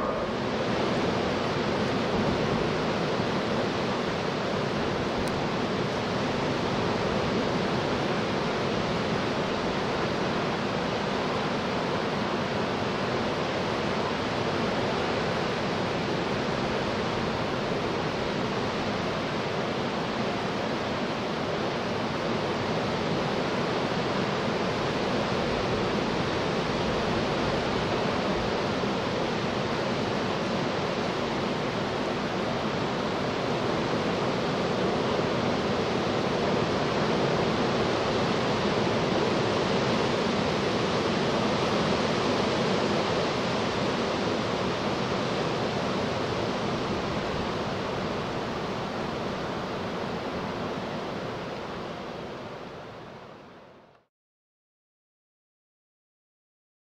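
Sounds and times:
jet engines running: 0:00.0 - 0:19.6
faint steady hum: 0:00.0 - 0:54.0.

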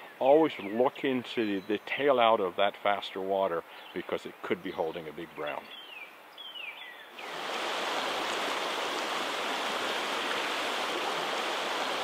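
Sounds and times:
creek water flowing: 0:07.1 - 0:12.0.

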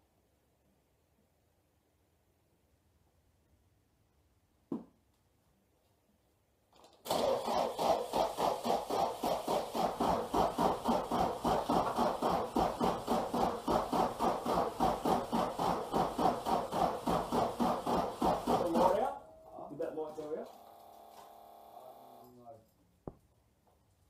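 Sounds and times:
engine cranking by starter motor: 0:06.8 - 0:19.1.

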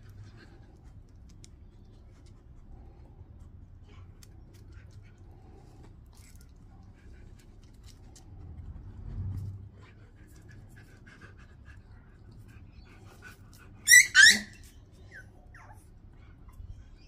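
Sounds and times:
puppy yapping: 0:13.8 - 0:15.8
puppy whimpering: 0:13.8 - 0:17.0.

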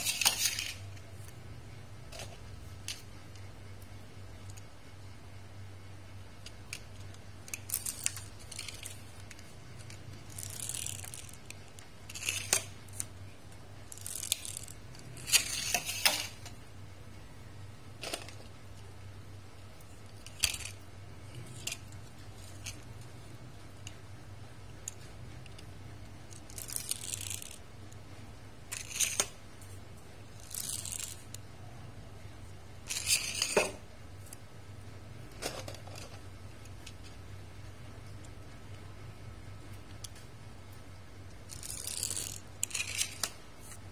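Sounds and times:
toy car wheels whirring: 0:00.0 - 0:00.8, 0:06.4 - 0:13.1, 0:13.8 - 0:16.4, 0:20.1 - 0:22.9, 0:26.3 - 0:27.6, 0:28.6 - 0:29.4, 0:30.3 - 0:31.4, 0:32.8 - 0:33.6, 0:41.5 - 0:43.8
faint low hum: 0:00.0 - 0:43.9
toy cars clicking on stone floor: 0:06.7 - 0:13.0, 0:26.3 - 0:27.6, 0:30.4 - 0:31.4, 0:41.5 - 0:43.4.

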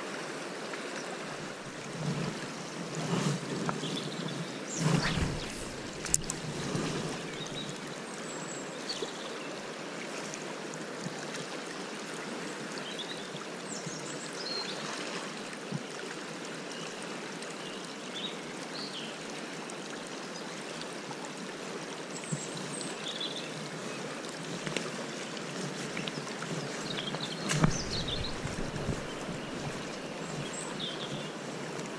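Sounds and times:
river water rushing: 0:00.0 - 0:03.0, 0:04.6 - 0:08.8, 0:24.9 - 0:31.9.

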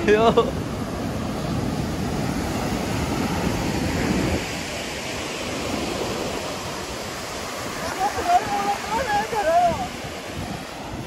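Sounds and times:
ocean surf breaking on beach: 0:00.0 - 0:11.0
wind rumbling on microphone: 0:00.0 - 0:11.0.

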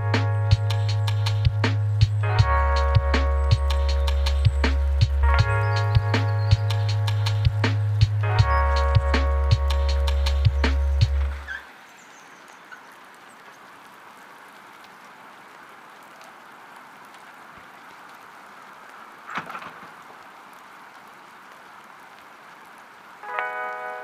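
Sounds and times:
soft hiss like light rain: 0:00.0 - 0:24.0
ringing chord: 0:23.2 - 0:24.0.

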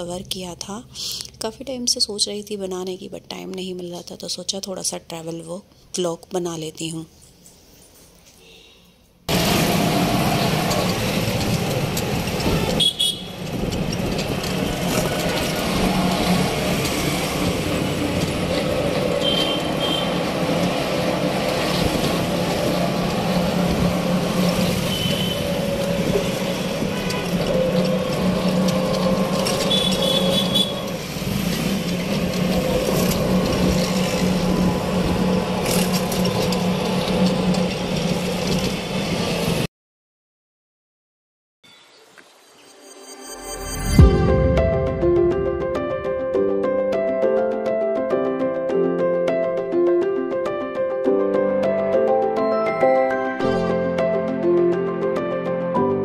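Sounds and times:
road and motor noise: 0:09.3 - 0:39.7
vehicle horn toots: 0:12.7 - 0:13.5, 0:19.2 - 0:20.2, 0:24.8 - 0:28.1, 0:29.4 - 0:31.0.

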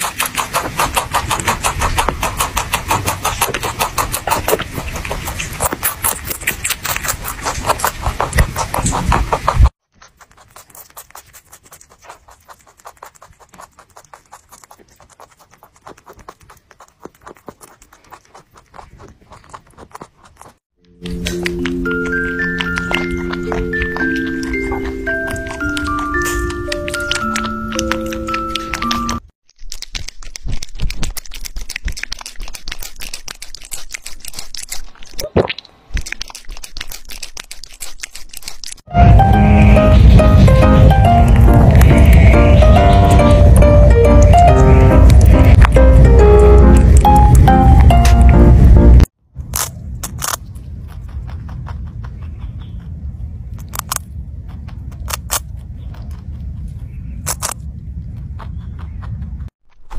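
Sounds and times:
rabbit chewing crisp vegetable: 0:00.0 - 0:59.9
rabbit squeak: 0:21.0 - 0:29.2, 0:39.0 - 0:45.9.

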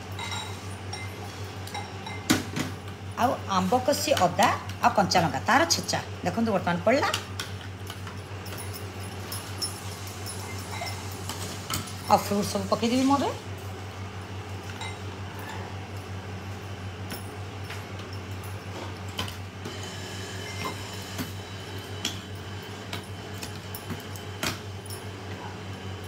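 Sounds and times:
spoon clinking on glass bowl: 0:09.4 - 0:11.1.

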